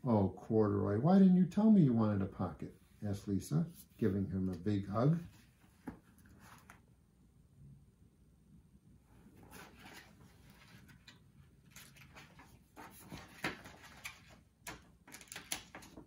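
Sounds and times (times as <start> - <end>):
book pages flipping: 3.8 - 6.9, 9.3 - 16.0.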